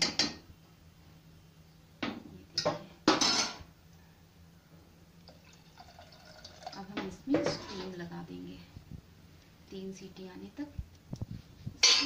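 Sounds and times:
water trickling into a pot: 0:05.2 - 0:07.0.

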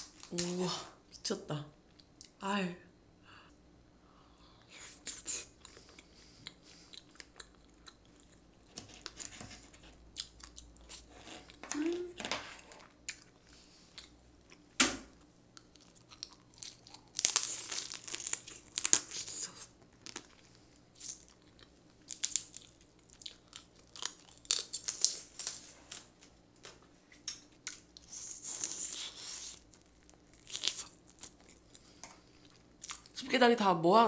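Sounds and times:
chewing: 0:05.5 - 0:11.7, 0:15.6 - 0:25.1, 0:27.6 - 0:33.2
crab shells cracking: 0:15.6 - 0:20.3, 0:21.0 - 0:26.0, 0:29.6 - 0:32.2.

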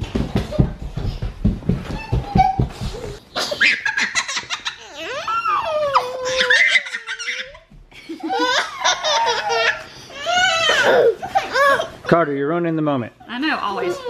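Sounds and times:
toddler giggling: 0:01.9 - 0:12.0
toddler squealing: 0:04.7 - 0:07.6.

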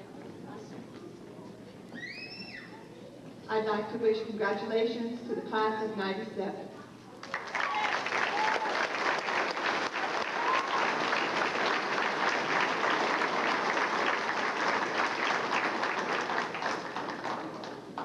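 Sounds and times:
audience applauding: 0:07.2 - 0:18.0.

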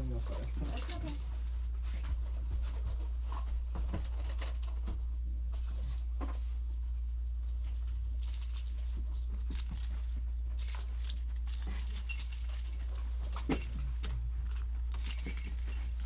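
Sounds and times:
light metallic jingling and clicking: 0:00.0 - 0:01.6, 0:07.5 - 0:16.0
steady low hum: 0:00.0 - 0:16.0.

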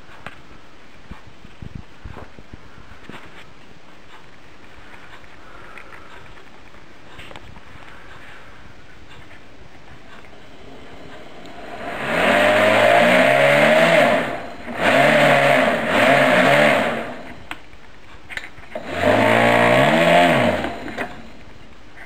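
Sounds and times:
electric motor and propeller whirring: 0:10.0 - 0:17.6, 0:18.7 - 0:21.8.

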